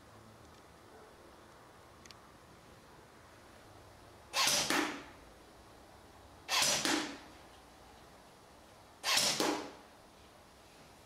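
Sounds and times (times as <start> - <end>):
airsoft rifle shots: 4.4 - 5.2, 6.5 - 7.3, 9.0 - 9.8.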